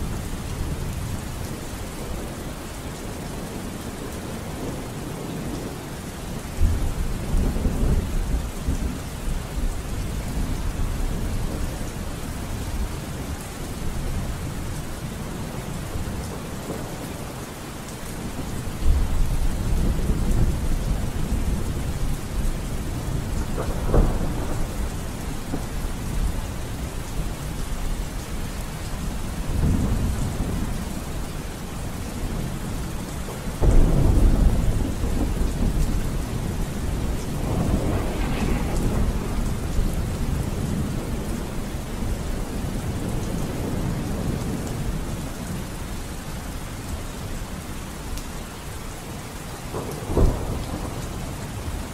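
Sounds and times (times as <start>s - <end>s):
steady rain: 0.0s - 51.9s
thunder rumbling: 18.2s - 45.4s, 49.7s - 51.9s.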